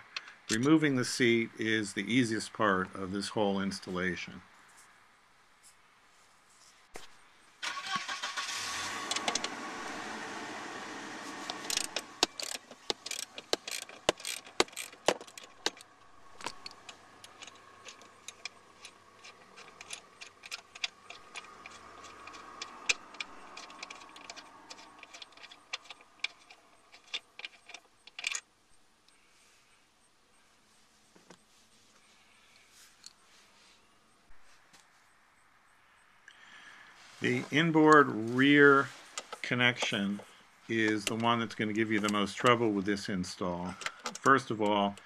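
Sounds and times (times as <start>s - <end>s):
socket ratchet clicking: 11.4s - 28.4s, 43.7s - 45.0s.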